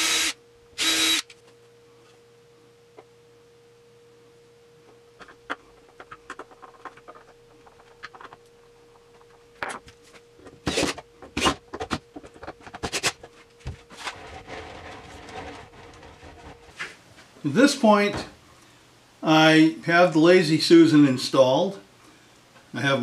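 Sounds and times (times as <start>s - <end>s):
cordless drill whirring: 0.0s - 1.4s
faint steady hum: 0.0s - 23.0s.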